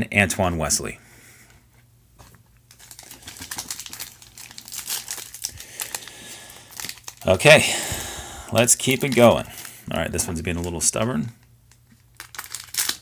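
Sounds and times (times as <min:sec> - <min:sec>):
plastic wrapper crinkling: 0:02.6 - 0:07.4, 0:08.5 - 0:13.0.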